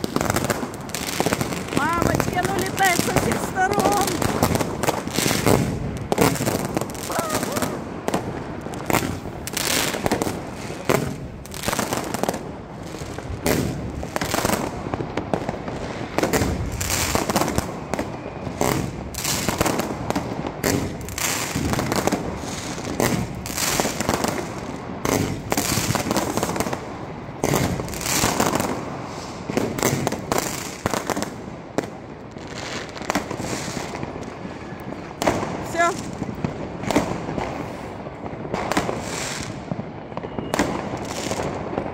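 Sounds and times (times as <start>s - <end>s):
fireworks and firecrackers banging: 0.0s - 41.9s.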